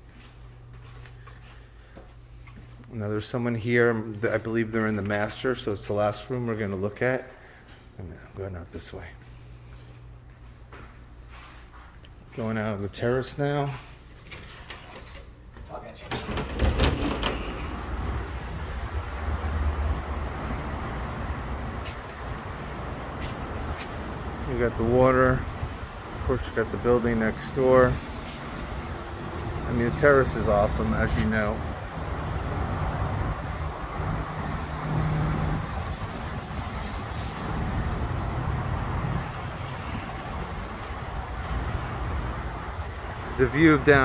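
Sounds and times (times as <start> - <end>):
distant traffic hiss: 16.3 - 44.0.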